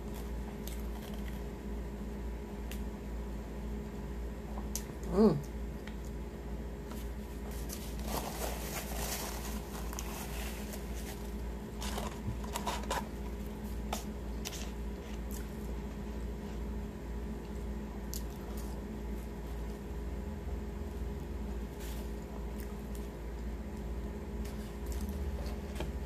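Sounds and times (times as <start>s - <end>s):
person chewing fries: 0.0s - 1.7s, 6.9s - 19.4s, 22.1s - 23.5s
steady low hum: 0.0s - 26.0s
paper wrapper crinkling: 7.4s - 13.4s.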